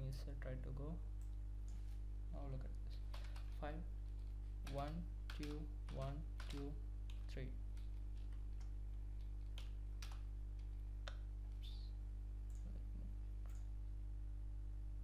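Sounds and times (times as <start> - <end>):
steady low hum: 0.0 - 15.0
computer keyboard and mouse clicks: 3.0 - 3.6, 4.2 - 10.8.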